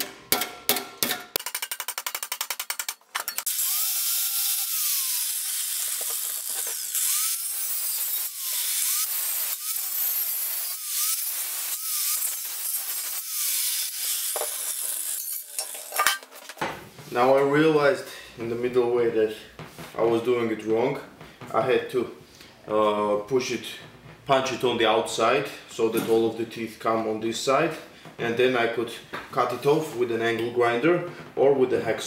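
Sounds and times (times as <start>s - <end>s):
angle grinder cutting metal: 3.2s - 16.2s.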